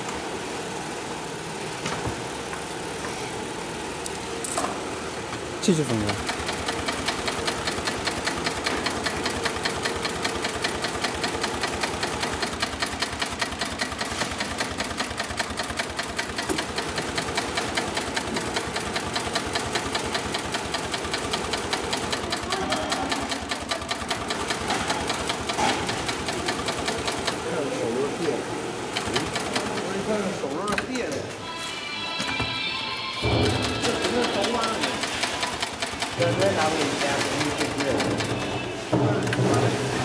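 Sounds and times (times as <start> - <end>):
sewing machine sewing: 5.6 - 30.8, 33.2 - 38.7.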